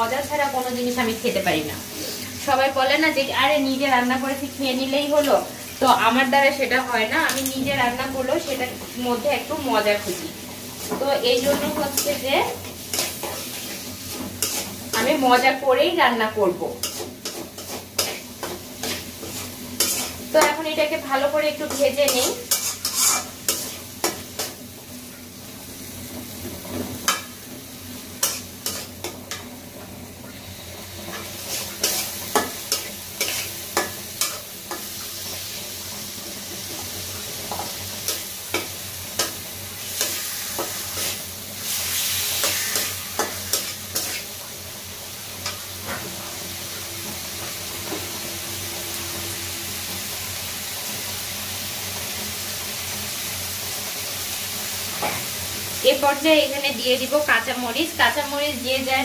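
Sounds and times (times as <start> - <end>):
tomato sizzling in a pan: 0.0 - 59.0
metal spatula scraping a pan: 10.8 - 15.4, 16.8 - 20.6, 21.2 - 24.6, 28.2 - 29.5, 31.1 - 34.9, 37.5 - 44.4.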